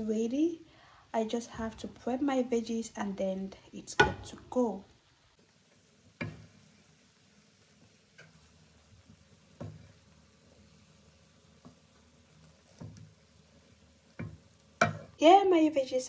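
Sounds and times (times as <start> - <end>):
wooden spoon stirring rice: 5.4 - 6.8, 7.5 - 15.2
spoon knocking against pot: 14.2 - 15.2.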